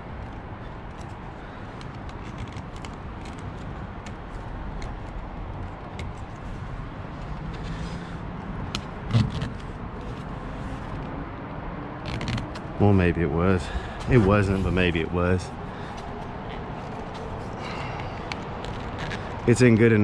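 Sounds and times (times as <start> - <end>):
steady background noise: 0.0 - 20.0
rubber stripping clicking and rubbing: 1.8 - 6.5, 12.0 - 12.8, 18.2 - 19.4.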